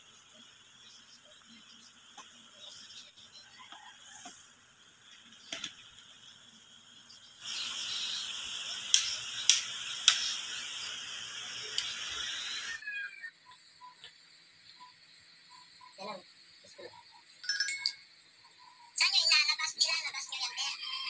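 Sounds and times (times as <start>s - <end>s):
steady hiss: 4.0s - 16.9s.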